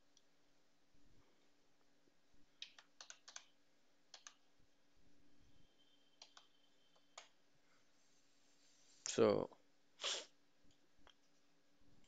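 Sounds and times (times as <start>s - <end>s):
faint keyboard keystrokes: 2.6s - 4.4s, 6.2s - 7.4s.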